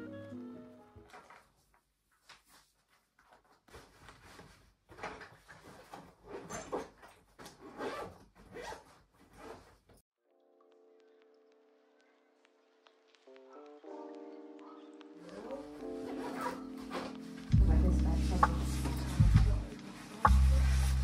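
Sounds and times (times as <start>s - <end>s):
fabric rustling: 1.1s - 10.0s, 15.4s - 21.0s
zipper pulls: 6.2s - 9.9s, 16.1s - 17.1s.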